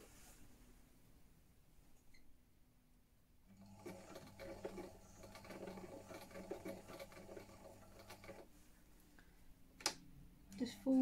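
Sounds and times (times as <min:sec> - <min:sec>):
sewing machine motor humming: 0:03.5 - 0:08.5.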